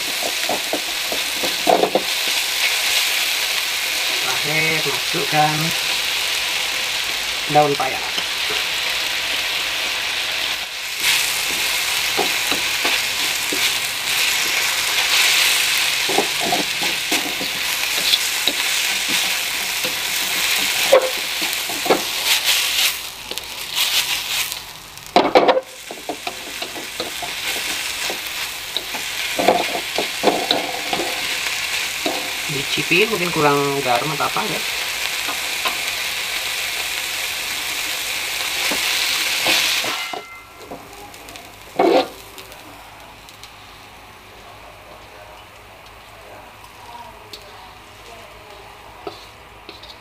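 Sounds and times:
hot oil sizzling in a wok: 0:00.0 - 0:50.0.

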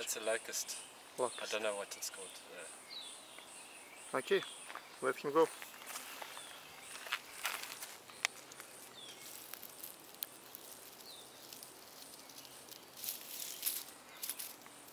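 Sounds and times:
dry leaves rustling and crackling: 0:05.6 - 0:14.9.

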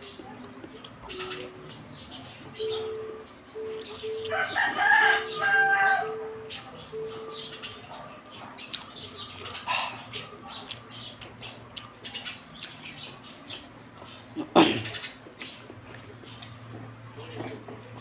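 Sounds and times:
birds calling: 0:00.0 - 0:18.0
chewing and mouth sounds: 0:08.6 - 0:12.8, 0:15.1 - 0:16.9.

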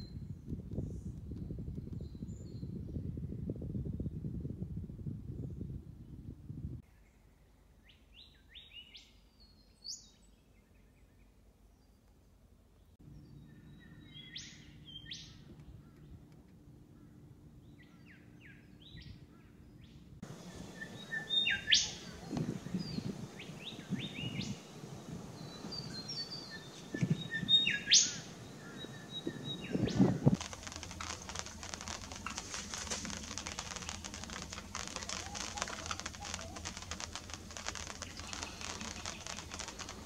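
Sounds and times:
crackling rustle: 0:20.2 - 0:40.0
birds chip calls: 0:20.3 - 0:40.0
low bumps: 0:28.8 - 0:40.0.

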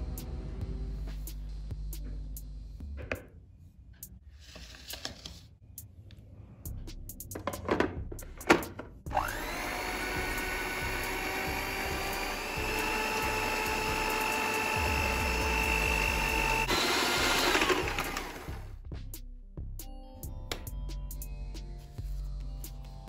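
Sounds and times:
electric mixer motor whining: 0:09.1 - 0:18.7.

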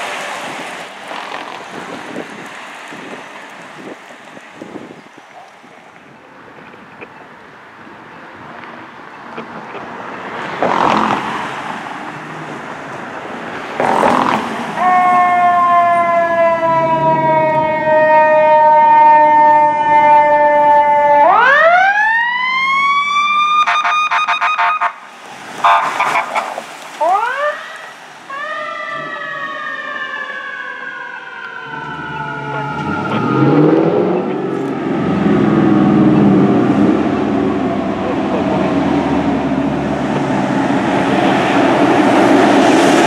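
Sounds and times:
loud horn blasts: 0:13.8 - 0:15.2, 0:25.6 - 0:26.6
rapid pulsing siren: 0:13.8 - 0:25.0, 0:25.6 - 0:34.6
siren wailing: 0:13.8 - 0:25.0, 0:25.6 - 0:38.7.

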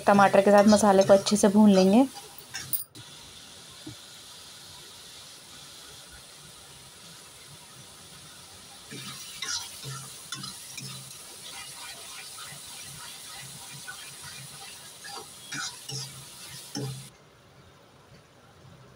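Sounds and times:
metal spatula scraping a pan: 0:00.0 - 0:02.8, 0:08.9 - 0:17.1
sauce sizzling in a metal pan: 0:00.0 - 0:17.1.

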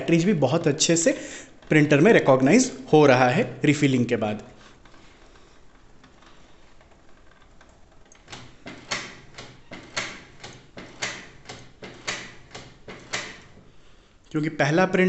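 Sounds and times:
printer mechanism whirring clicks: 0:07.4 - 0:13.7.

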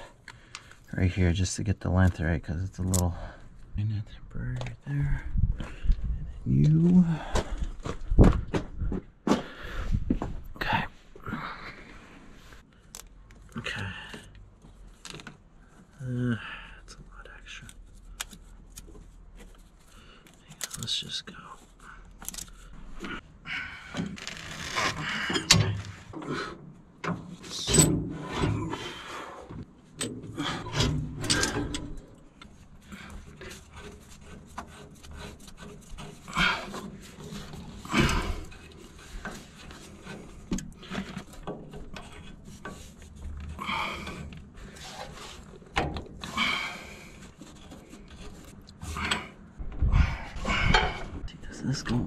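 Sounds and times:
wrench clicking and scraping on metal: 0:30.0 - 0:32.5.

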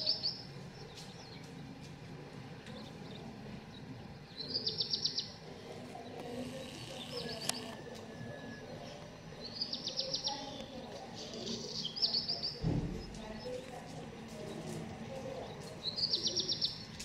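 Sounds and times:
songbird trilling: 0:09.4 - 0:10.8
low thump: 0:12.6 - 0:13.2.

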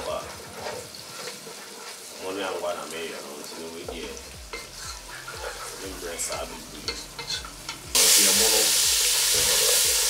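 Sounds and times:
wooden spatula scraping pot: 0:00.0 - 0:07.8
meat and onions sizzling in oil: 0:00.0 - 0:10.0.

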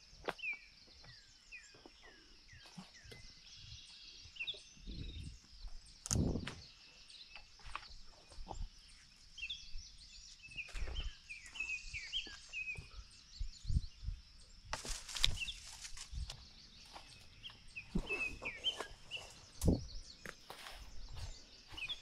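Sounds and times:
small birds chirping: 0:00.0 - 0:22.0
leaves and twigs rustling: 0:14.6 - 0:22.0
footsteps through undergrowth: 0:14.7 - 0:22.0.

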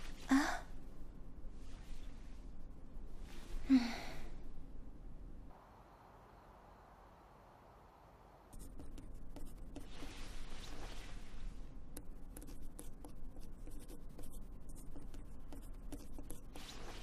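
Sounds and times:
pencil writing on paper: 0:12.4 - 0:16.4.

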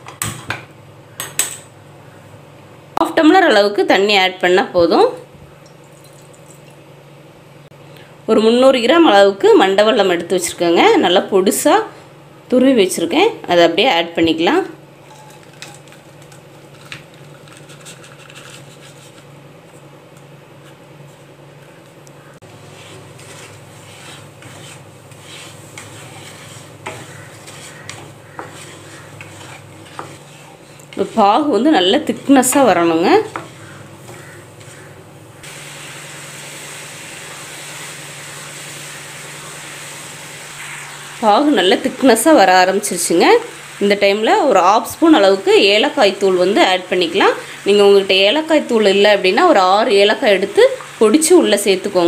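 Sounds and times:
steady low hum: 0:04.4 - 0:36.4.

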